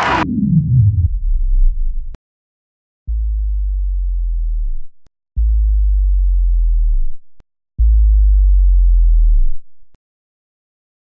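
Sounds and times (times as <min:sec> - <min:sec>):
deep synthesized bass tones: 0:00.0 - 0:02.2, 0:03.1 - 0:09.7.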